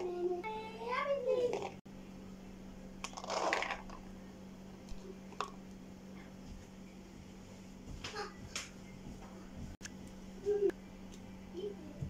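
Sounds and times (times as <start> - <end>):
steady low hum: 0.0 - 12.0
beans pouring wet rustle: 3.1 - 3.8.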